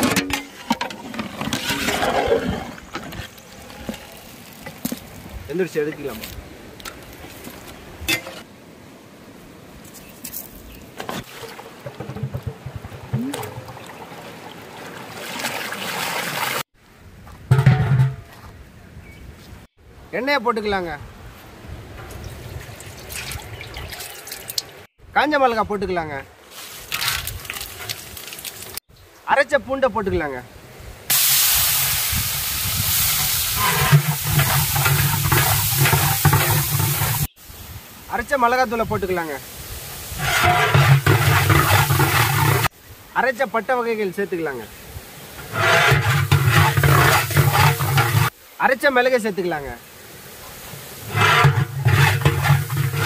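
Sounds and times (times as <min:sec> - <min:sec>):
metal ladle stirring crackle: 0:00.0 - 0:05.3, 0:26.5 - 0:28.8, 0:32.5 - 0:37.4, 0:40.0 - 0:42.7, 0:45.3 - 0:48.4, 0:51.0 - 0:53.0
water pouring into river: 0:12.8 - 0:16.6, 0:22.6 - 0:24.8
frying in hot oil sizzle: 0:26.6 - 0:28.8, 0:31.1 - 0:42.8, 0:50.6 - 0:53.0
water gurgling in metal pot: 0:33.2 - 0:37.3, 0:40.2 - 0:42.7, 0:45.4 - 0:48.4, 0:51.0 - 0:53.0.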